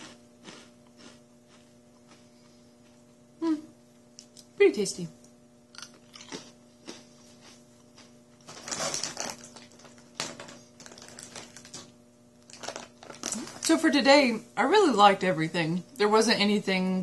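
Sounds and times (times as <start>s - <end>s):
crunchy crackers being chewed: 0.0s - 3.2s, 5.7s - 13.8s
packaging rustling and crinkling: 8.4s - 13.7s.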